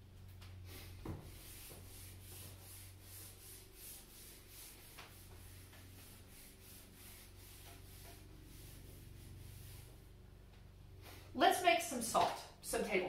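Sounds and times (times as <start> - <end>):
eraser swishing on whiteboard: 0.7 - 10.2.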